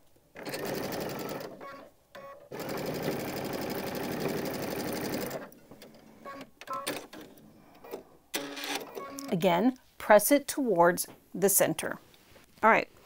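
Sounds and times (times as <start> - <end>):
sewing machine stitching: 0.4 - 9.3.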